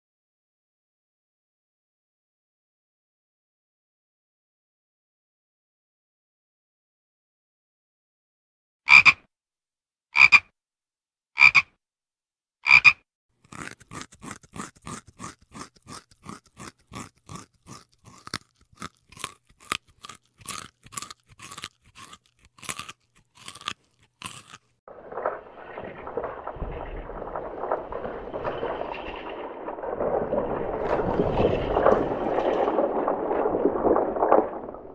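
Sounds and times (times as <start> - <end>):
toad calling: 8.9 - 9.2, 10.2 - 10.5, 11.4 - 11.7, 12.6 - 13.0
rabbit crunching carrot: 13.4 - 24.8.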